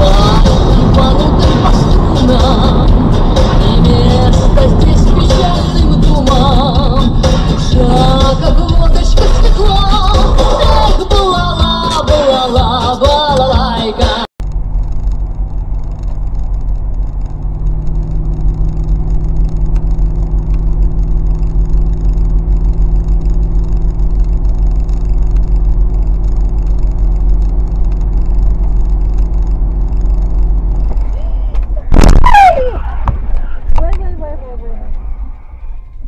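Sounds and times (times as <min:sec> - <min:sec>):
car engine and tyres drone: 0:00.0 - 0:36.0
loud noise with falling pitch: 0:31.8 - 0:33.8.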